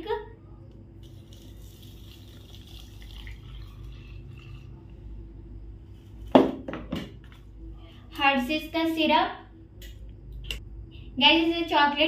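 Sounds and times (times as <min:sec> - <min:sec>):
milk pouring into blender jar: 0:01.0 - 0:04.9.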